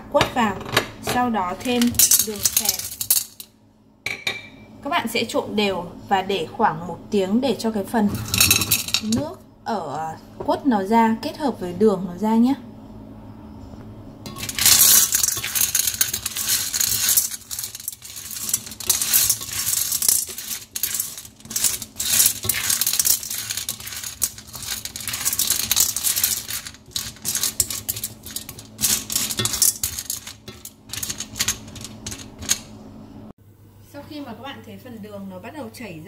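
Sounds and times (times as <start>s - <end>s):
sugar lumps clattering in metal bowl: 14.3s - 32.7s.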